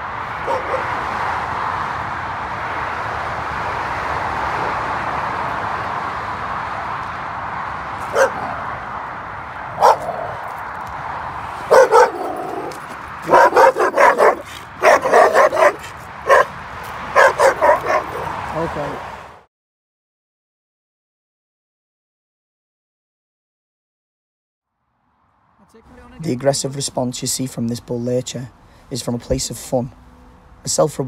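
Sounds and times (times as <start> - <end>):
dog barking: 0.4 - 1.0, 8.0 - 8.6, 9.8 - 10.4, 11.7 - 18.4.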